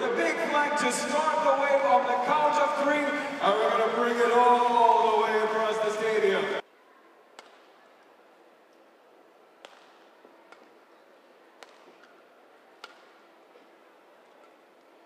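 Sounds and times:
low murmur of hall: 0.0s - 15.0s
rackets hitting shuttlecock: 7.4s - 7.8s, 9.6s - 10.8s, 11.6s - 12.2s, 12.8s - 13.3s.

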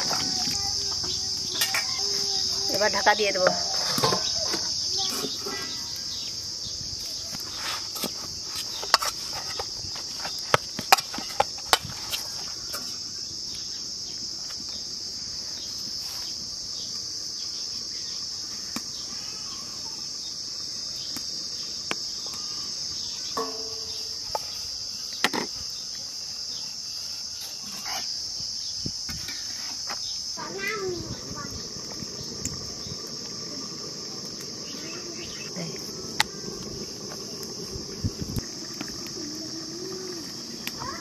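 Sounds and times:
insects chirring: 0.0s - 41.0s
knocks and taps in a metal bowl: 23.4s - 24.4s.

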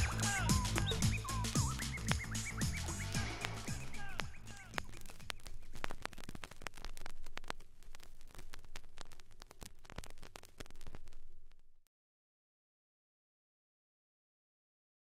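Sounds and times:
vinyl crackle pops and clicks: 0.0s - 11.9s.

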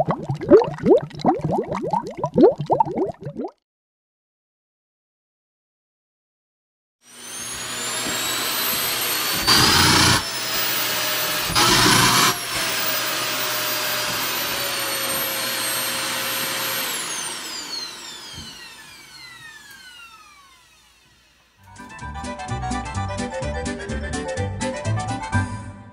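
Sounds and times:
vacuum cleaner whining: 7.1s - 21.7s.

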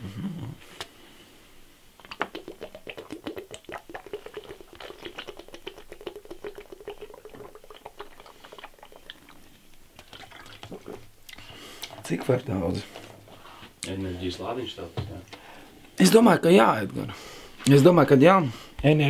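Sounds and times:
man gulping liquid from bottle: 2.0s - 12.1s.

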